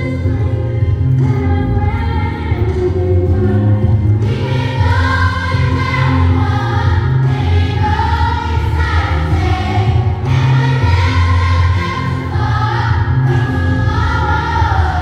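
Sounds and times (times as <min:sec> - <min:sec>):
choir singing: 0:03.6 - 0:15.0.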